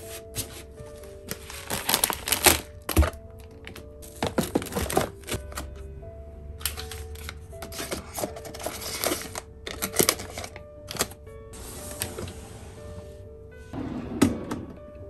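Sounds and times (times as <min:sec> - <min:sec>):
tea sachets rustling and crinkling: 0:00.0 - 0:05.7, 0:06.7 - 0:11.1
soft background music: 0:00.0 - 0:15.0.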